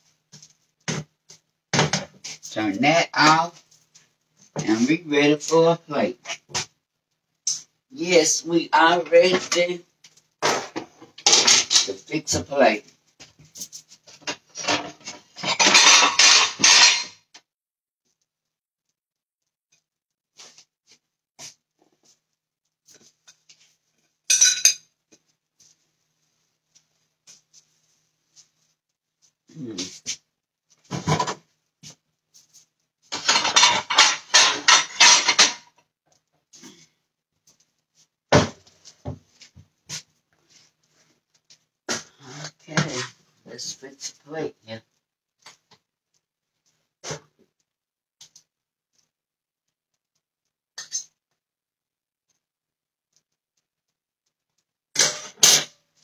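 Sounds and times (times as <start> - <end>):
plates and dishes clattering: 10.4 - 11.9, 14.1 - 17.2, 24.3 - 24.9, 30.9 - 31.4, 33.1 - 35.8, 55.0 - 55.8
utensils scraping: 14.4 - 17.1, 33.1 - 35.6.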